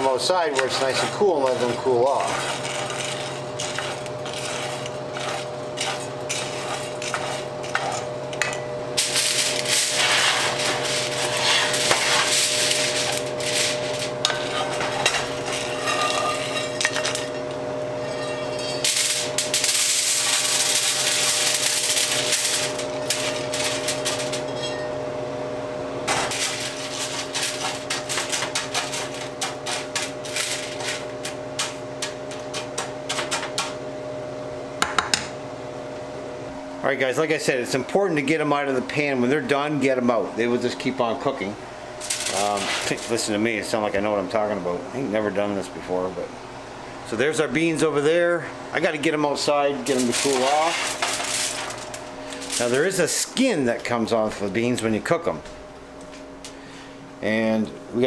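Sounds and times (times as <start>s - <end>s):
steady hum: 0.0s - 58.0s
foil crinkling: 0.4s - 8.1s, 9.0s - 15.5s, 18.4s - 24.5s, 26.1s - 33.6s, 42.0s - 43.3s, 49.8s - 53.6s
coffee beans rattling in skillet: 0.4s - 25.0s, 26.1s - 33.7s, 42.0s - 43.4s, 49.0s - 53.5s
wooden spatula scraping skillet: 0.6s - 8.2s, 9.0s - 17.4s.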